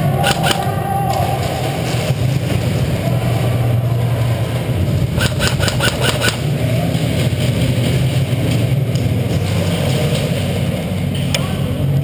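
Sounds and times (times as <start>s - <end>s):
steady low hum: 0.0s - 12.0s
airsoft guns firing: 5.2s - 6.4s.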